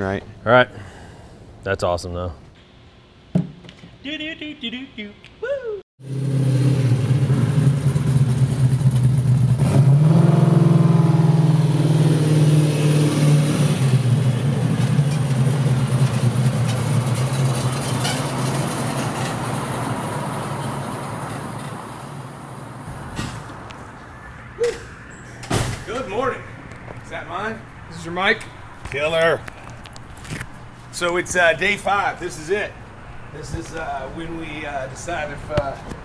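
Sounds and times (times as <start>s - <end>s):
engine running and revving: 6.0s - 21.8s.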